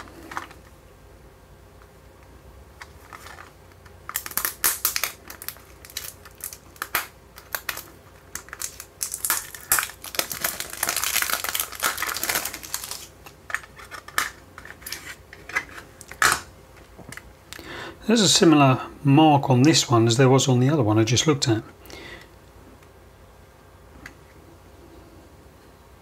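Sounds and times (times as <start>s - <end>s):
cellophane wrapper crinkling: 2.8s - 16.2s.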